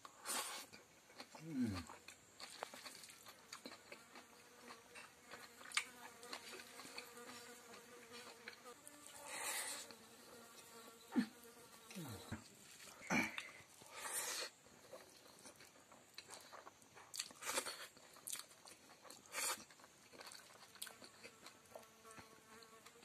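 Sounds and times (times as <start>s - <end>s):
wet eating smacks: 1.2s - 3.8s
fly buzzing: 4.0s - 13.3s.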